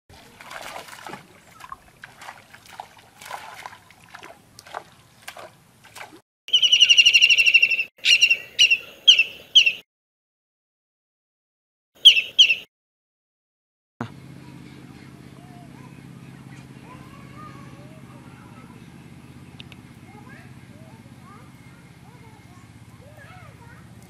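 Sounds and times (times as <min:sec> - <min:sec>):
pond water splashing: 0:00.1 - 0:06.2
high bird call trill: 0:06.5 - 0:09.8, 0:12.0 - 0:12.7.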